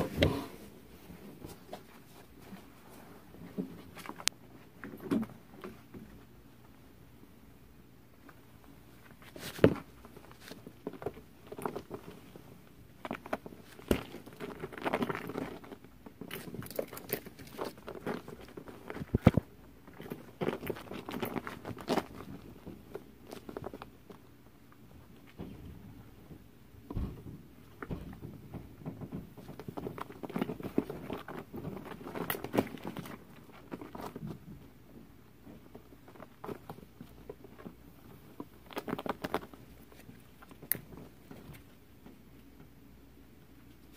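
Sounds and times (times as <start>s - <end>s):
rug rustling: 0.0s - 4.3s
ferrets scampering on a rug: 0.0s - 6.8s, 8.2s - 42.8s.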